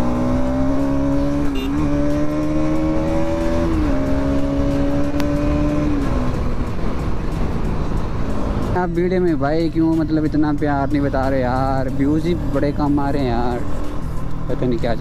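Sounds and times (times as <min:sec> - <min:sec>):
motorcycle engine running hard: 0:00.0 - 0:09.2.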